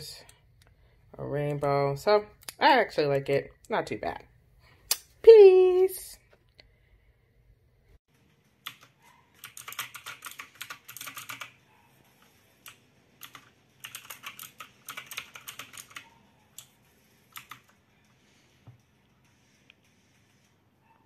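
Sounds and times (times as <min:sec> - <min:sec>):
clicky mechanical keyboard typing: 0:08.6 - 0:11.6, 0:12.6 - 0:17.8.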